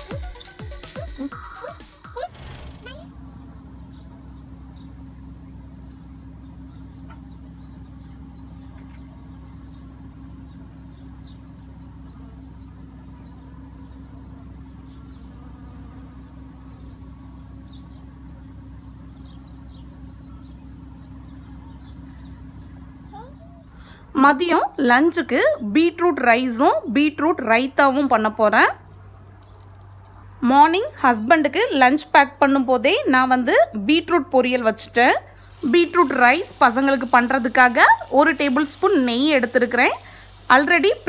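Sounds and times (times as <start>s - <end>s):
steady low hum: 0.0s - 41.0s
faint bird chirps: 0.3s - 24.0s.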